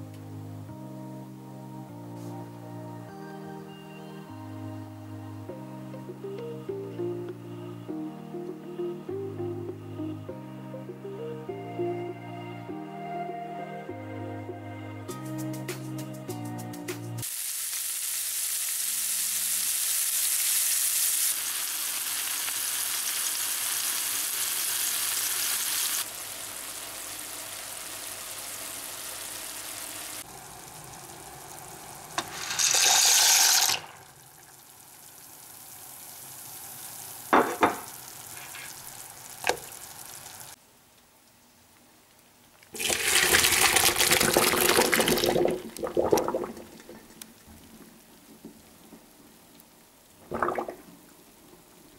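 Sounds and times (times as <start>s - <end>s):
onion and bacon sizzling in a pan: 17.2s - 40.6s
water poured into a colander: 31.6s - 39.8s, 42.8s - 48.5s.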